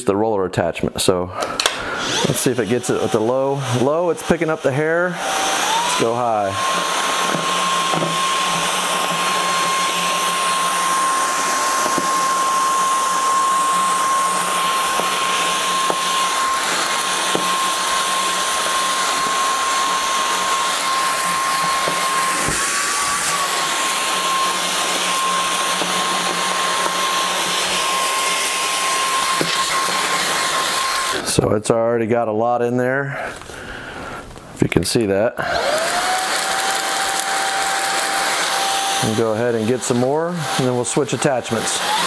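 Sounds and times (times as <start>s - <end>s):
stick vacuum whining: 1.4s - 31.6s, 35.4s - 42.0s.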